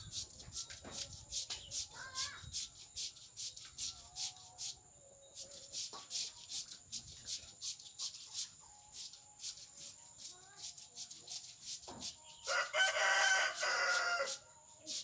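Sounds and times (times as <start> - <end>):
insect chirping rhythmically: 0.0 - 12.8, 13.5 - 15.0.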